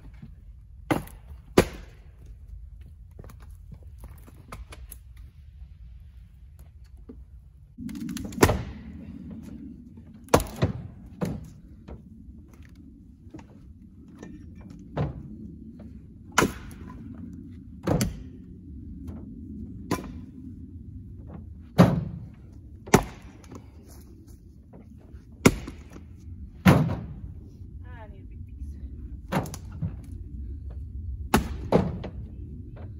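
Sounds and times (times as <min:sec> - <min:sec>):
faint low hum: 0:00.0 - 0:32.9
maul striking firewood: 0:00.8 - 0:02.2, 0:10.2 - 0:11.5, 0:16.3 - 0:17.0, 0:22.8 - 0:23.7, 0:25.4 - 0:27.0, 0:31.3 - 0:32.1.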